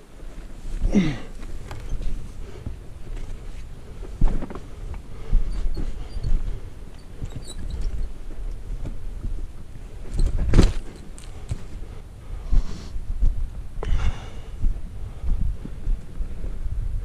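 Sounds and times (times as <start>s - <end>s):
wind rumbling on microphone: 0.0s - 17.0s
person breathing: 0.7s - 6.8s, 11.2s - 13.1s, 13.8s - 15.8s.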